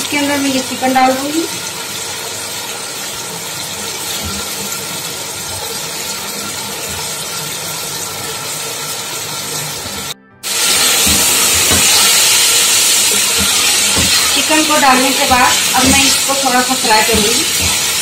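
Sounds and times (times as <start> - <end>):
food sizzling in hot oil: 0.0 - 18.0
wooden spoon stirring: 11.0 - 18.0.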